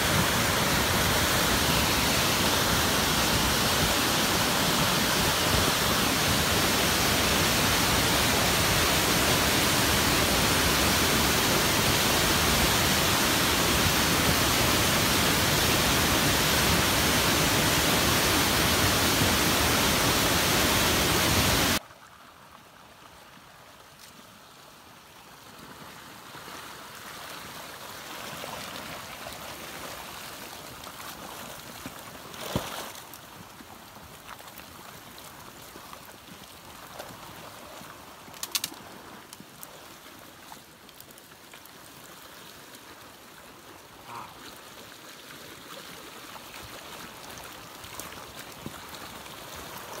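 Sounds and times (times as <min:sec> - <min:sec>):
flood water rushing: 0:00.0 - 0:21.8, 0:33.8 - 0:50.0
faint rush of water: 0:00.0 - 0:50.0.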